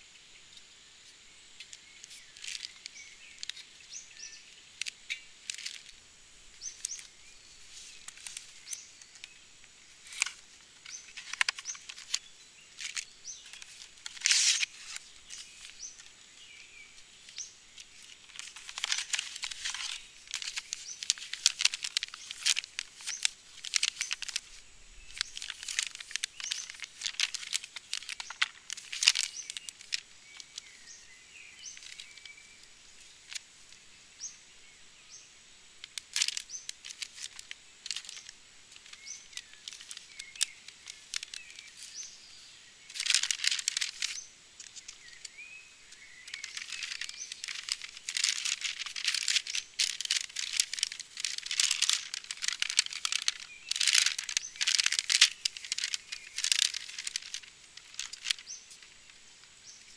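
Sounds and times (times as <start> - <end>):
faint bird chirps: 0.0 - 35.4
plastic packaging crinkling: 4.2 - 9.4, 10.0 - 33.4, 35.9 - 42.1, 42.8 - 59.9.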